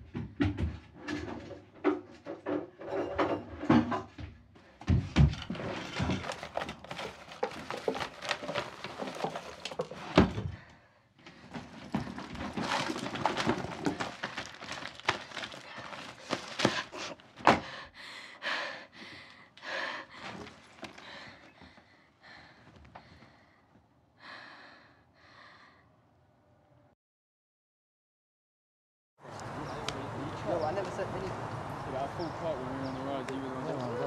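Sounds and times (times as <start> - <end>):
rummaging through wooden drawers: 0.2 - 10.7, 11.3 - 17.7, 20.2 - 21.6.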